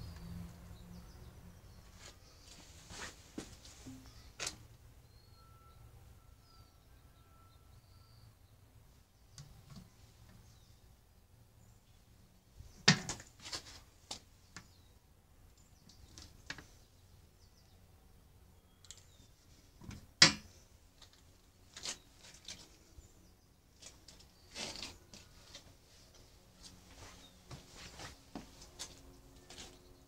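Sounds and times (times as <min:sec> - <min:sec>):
scraping rustle: 0:23.8 - 0:29.9.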